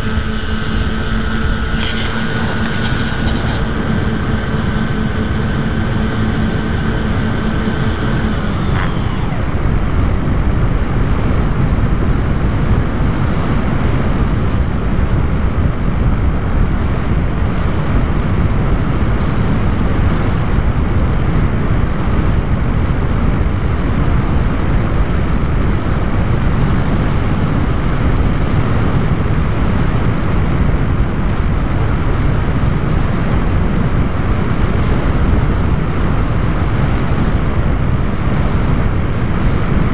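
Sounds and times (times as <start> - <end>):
motor whine: 0.0 - 9.5.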